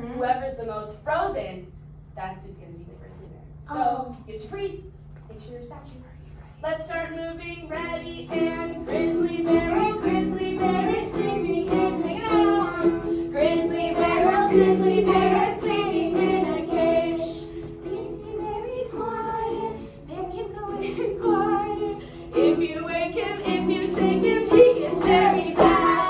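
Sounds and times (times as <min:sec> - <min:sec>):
women singing: 0:07.2 - 0:26.0
children singing: 0:08.3 - 0:26.0.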